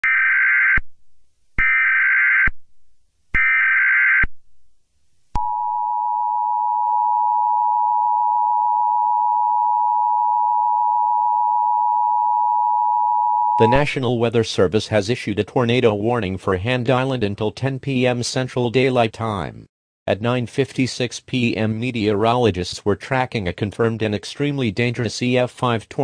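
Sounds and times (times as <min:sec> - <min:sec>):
two-tone attention signal: 0:05.4 - 0:14.0
digital data tone bursts: 0:13.6 - 0:14.1.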